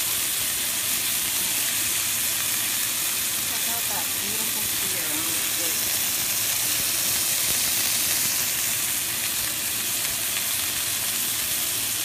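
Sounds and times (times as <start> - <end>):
steaks sizzling in skillet: 0.0 - 12.0.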